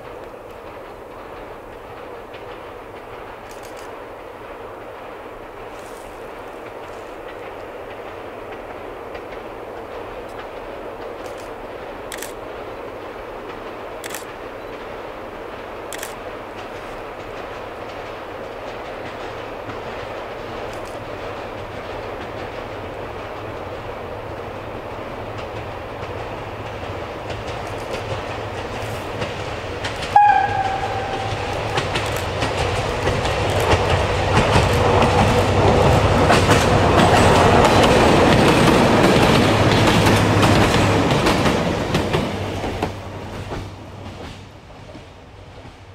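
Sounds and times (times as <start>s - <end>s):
railcar running noise: 0.0s - 45.9s
train horn blast: 30.1s - 32.0s.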